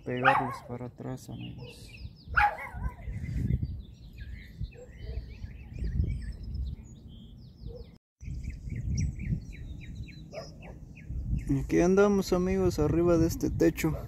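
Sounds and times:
small birds chirping: 0:00.0 - 0:14.0
dog barking: 0:00.2 - 0:00.8, 0:01.6 - 0:03.1, 0:04.8 - 0:05.3, 0:07.6 - 0:07.9, 0:10.3 - 0:10.8.

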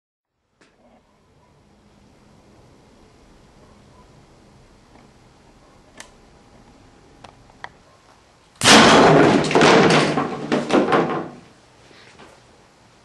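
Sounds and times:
potato gun bang: 0:08.6 - 0:11.4
board crashing to floor: 0:08.6 - 0:11.6.

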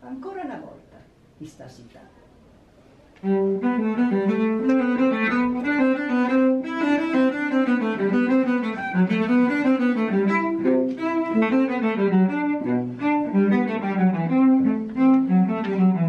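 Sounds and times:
solo cello melody: 0:03.2 - 0:16.0.

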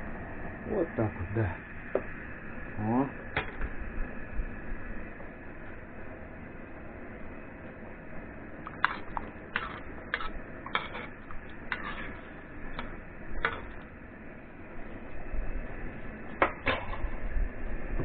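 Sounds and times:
utensils scraping a metal pot: 0:09.6 - 0:12.2.

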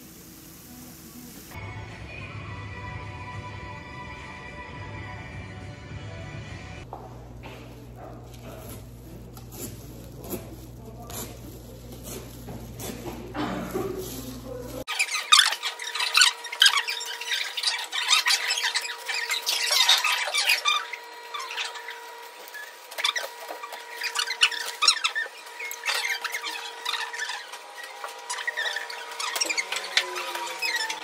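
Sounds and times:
plastic sheeting crinkling: 0:07.7 - 0:15.4.

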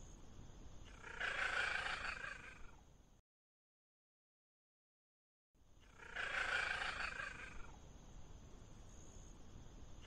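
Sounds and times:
faint steady hiss: 0:00.0 - 0:03.2, 0:05.6 - 0:10.0.

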